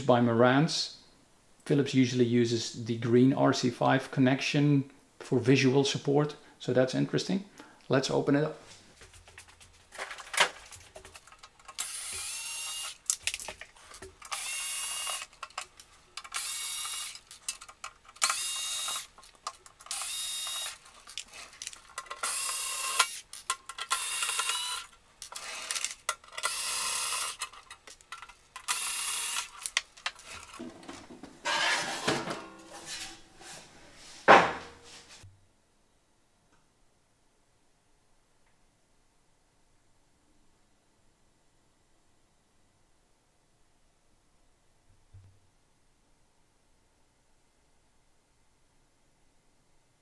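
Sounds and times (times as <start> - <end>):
electric screwdriver whirring: 11.7 - 13.2, 14.2 - 15.4, 16.2 - 17.4, 18.2 - 19.2, 19.8 - 27.5, 28.6 - 29.8
metal cover scraping and rattling: 30.2 - 33.6
metal cover landing clunk: 30.6 - 33.1, 34.3 - 34.8.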